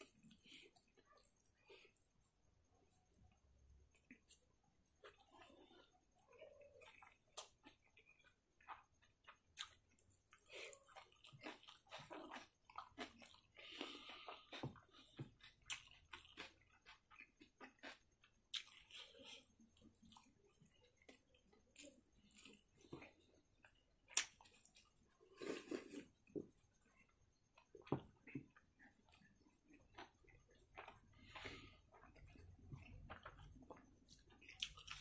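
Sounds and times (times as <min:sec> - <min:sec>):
chewing and lip smacking: 0:03.9 - 0:35.0.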